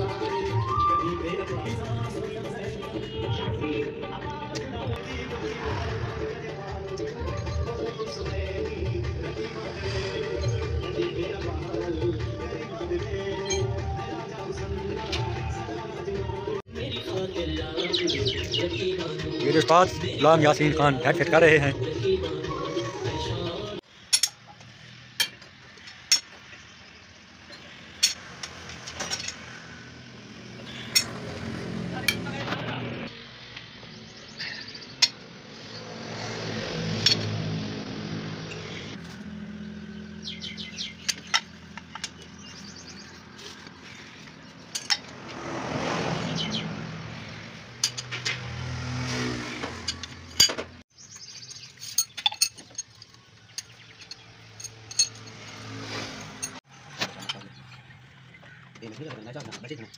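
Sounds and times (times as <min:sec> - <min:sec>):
passing vehicles: 0:00.0 - 0:59.9
metal tools clinking on engine: 0:13.4 - 0:13.9, 0:24.0 - 0:26.6, 0:27.4 - 0:29.6, 0:30.7 - 0:31.2, 0:37.0 - 0:37.4, 0:40.4 - 0:45.2, 0:47.8 - 0:48.4, 0:49.6 - 0:59.9.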